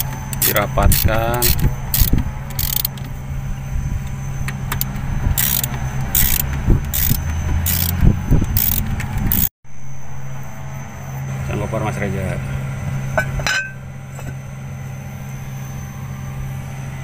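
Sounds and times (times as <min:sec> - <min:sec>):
ratchet wrench clicking: 0:00.0 - 0:03.1, 0:04.7 - 0:09.5
steady low engine hum: 0:00.0 - 0:17.0.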